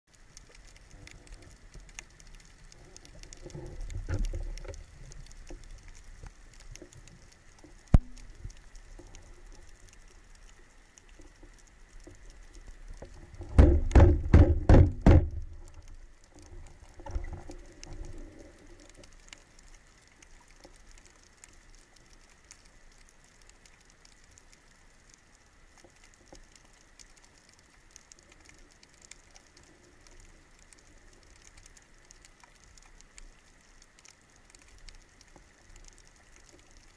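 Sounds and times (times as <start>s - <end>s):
underwater crackling and ticking: 0.1s - 36.9s
low thumps: 13.4s - 15.6s.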